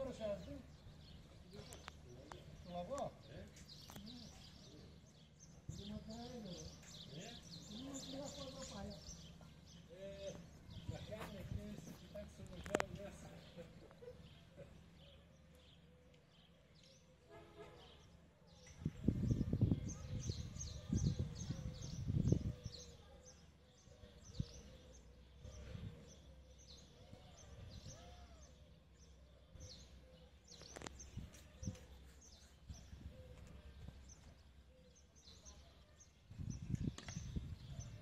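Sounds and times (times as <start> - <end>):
small birds chirping: 0.0 - 38.0
wind buffeting microphone: 10.6 - 12.9, 18.8 - 22.9, 36.3 - 38.0.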